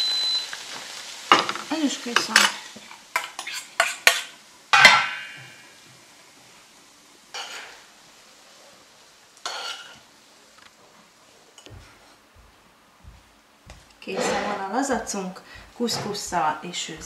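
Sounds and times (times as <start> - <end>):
spoon scraping frying pan: 2.1 - 5.4, 7.3 - 7.8, 9.4 - 10.1.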